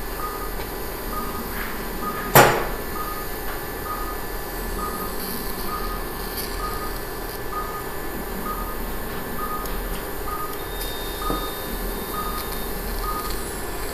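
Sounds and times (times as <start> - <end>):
patient monitor beeping: 0.0 - 13.9
steady hum: 0.0 - 13.9
sharp knock: 2.3 - 2.8.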